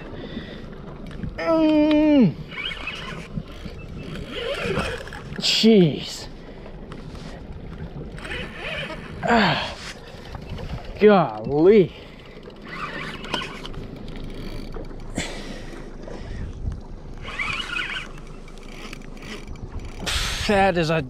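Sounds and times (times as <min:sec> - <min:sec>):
low rumble of wind and water: 0:00.0 - 0:21.0
fishing reel being cranked: 0:01.6 - 0:05.6, 0:08.1 - 0:09.4, 0:10.3 - 0:15.3, 0:17.1 - 0:20.6
man groaning with effort: 0:09.2 - 0:09.8.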